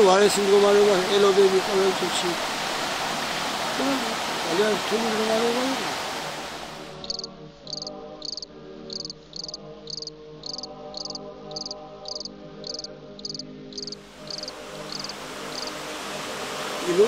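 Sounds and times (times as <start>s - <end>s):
soft sustained music chords: 6.6s - 17.0s
cricket chirping: 7.0s - 15.7s.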